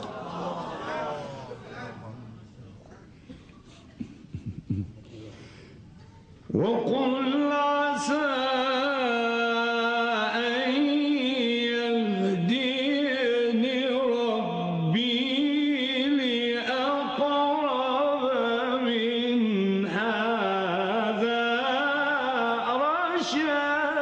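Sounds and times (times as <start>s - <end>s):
man chanting melodically: 6.5s - 24.0s.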